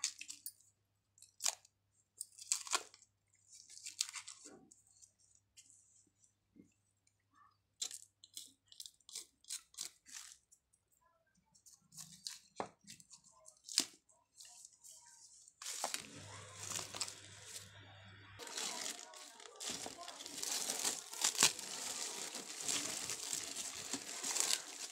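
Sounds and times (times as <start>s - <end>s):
cling film crinkling: 15.6s - 17.8s, 18.4s - 24.9s.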